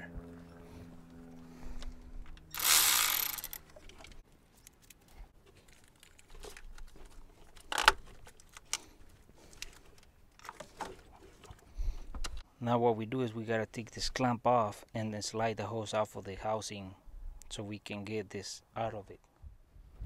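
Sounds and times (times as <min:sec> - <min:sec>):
loud rasping noise: 0:02.5 - 0:03.6.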